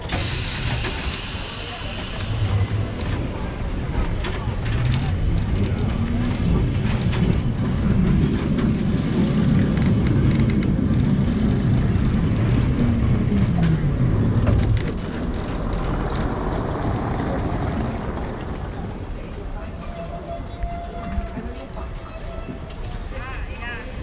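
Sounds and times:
tram rumbling on rails: 0:00.0 - 0:24.0
sharp clicks and rattles: 0:04.0 - 0:11.4.

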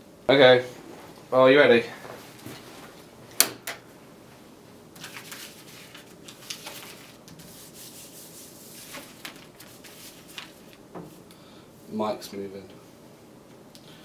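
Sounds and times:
paper rustling on wooden table: 0:05.0 - 0:11.2.

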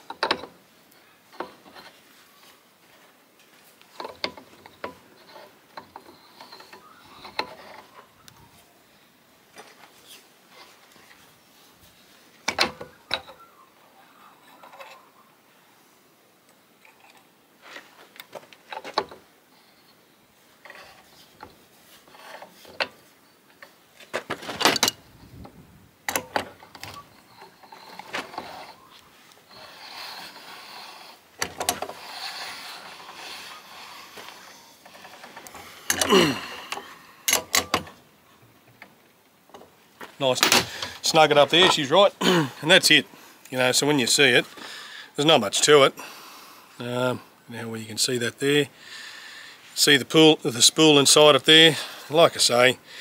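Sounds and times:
metal cap screwing clicks and scrapes: 0:20.6 - 0:23.8.

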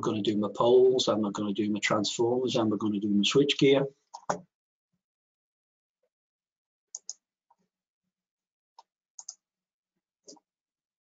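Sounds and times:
computer mouse clicks: 0:04.2 - 0:04.4, 0:07.0 - 0:07.2, 0:09.2 - 0:09.4.

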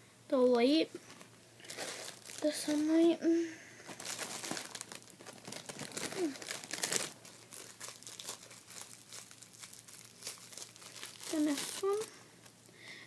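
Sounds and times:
plastic wrapping crinkling: 0:01.6 - 0:03.1, 0:03.8 - 0:12.6.

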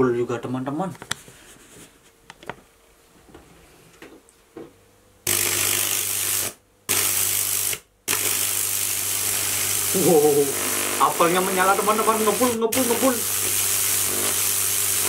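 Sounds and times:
electric arc hissing crackle: 0:05.2 - 0:15.0.

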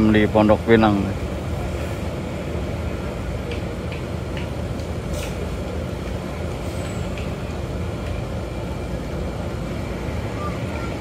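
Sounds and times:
diesel bus engine idling: 0:00.0 - 0:11.0
short hiss: 0:05.1 - 0:05.5.

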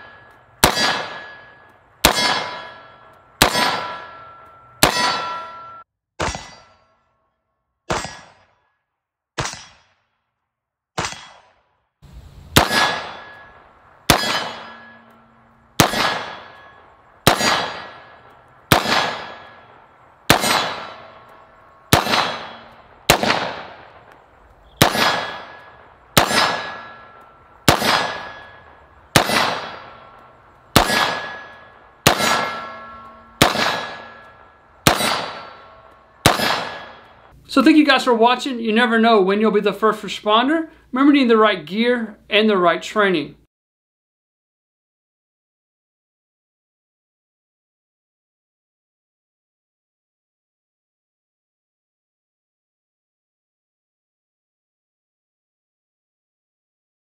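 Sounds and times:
metallic clangs ringing: 0:00.0 - 0:07.1, 0:12.9 - 0:17.0, 0:25.2 - 0:30.2, 0:30.8 - 0:37.2
low hum: 0:12.0 - 0:37.7.

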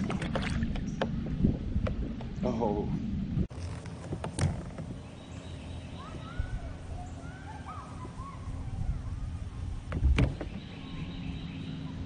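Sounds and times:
low background rumble: 0:00.0 - 0:12.0
birds chirping: 0:04.4 - 0:12.0.

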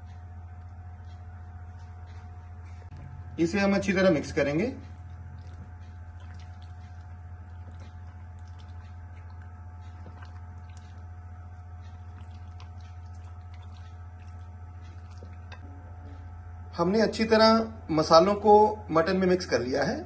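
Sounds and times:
spatula stirring wet food: 0:00.0 - 0:15.6
steady low hum: 0:00.0 - 0:20.0.

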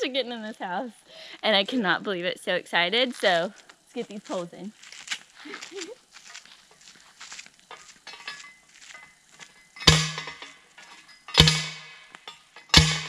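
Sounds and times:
pole ringing clanks: 0:07.7 - 0:13.0.

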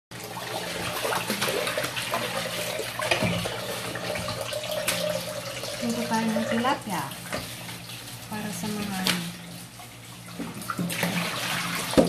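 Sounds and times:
water splashing over a pot: 0:00.1 - 0:12.0
faucet running into a steel sink: 0:00.2 - 0:07.1.

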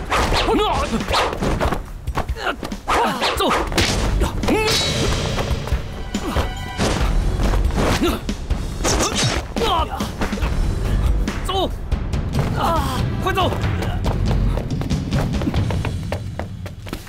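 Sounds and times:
people shouting and grunting: 0:00.0 - 0:15.7
dramatic action music: 0:00.0 - 0:16.7
punches and thuds: 0:00.1 - 0:10.5.

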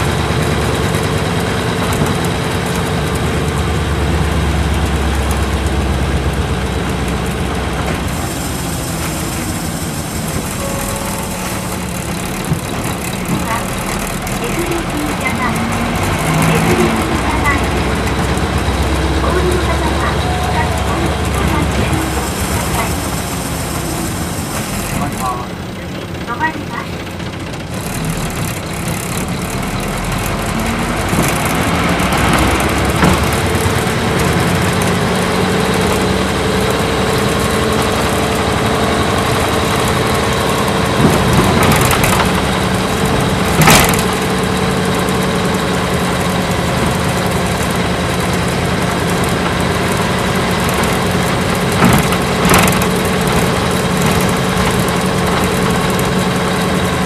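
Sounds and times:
diesel bus engine: 0:00.0 - 0:57.0.

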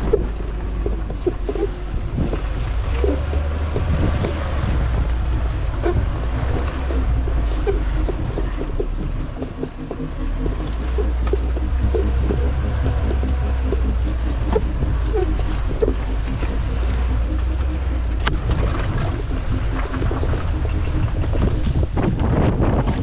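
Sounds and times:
vehicle engine rumbling: 0:00.0 - 0:23.0.

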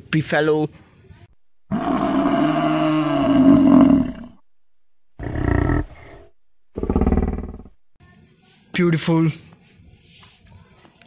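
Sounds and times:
water buffalo bellowing: 0:01.7 - 0:04.4.

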